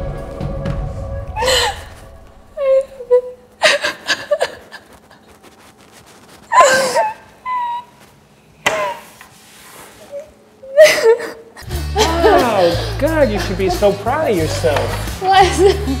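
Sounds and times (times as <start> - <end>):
woman sobbing: 1.4 - 5.2, 6.5 - 8.0, 10.1 - 14.0, 15.2 - 16.0.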